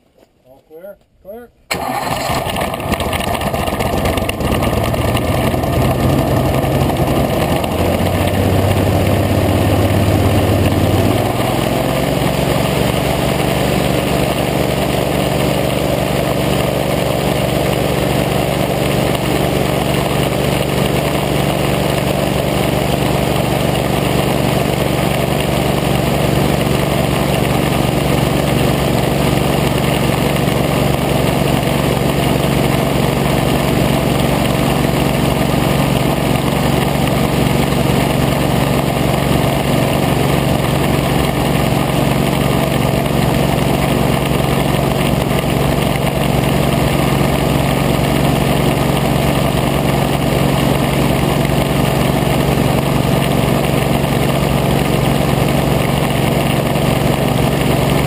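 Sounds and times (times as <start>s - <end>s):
hovercraft engine running: 1.7s - 58.0s.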